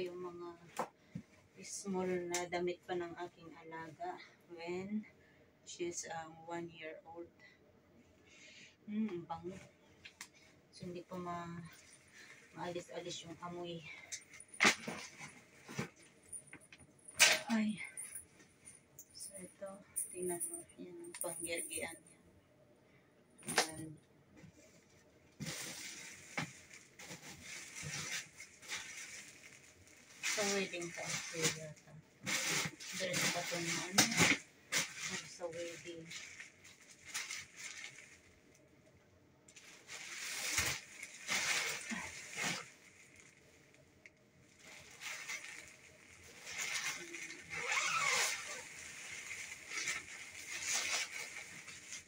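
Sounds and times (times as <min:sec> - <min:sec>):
plastic bags and clothes rustling: 0:10.8 - 0:22.0, 0:24.5 - 0:38.7, 0:39.5 - 0:52.0.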